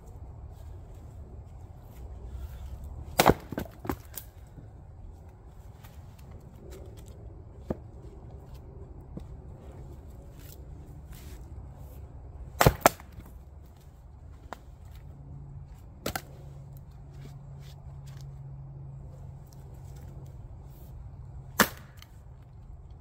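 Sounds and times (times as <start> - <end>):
axe chopping firewood: 3.0 - 4.4, 12.5 - 13.8, 16.0 - 16.4, 21.5 - 22.2.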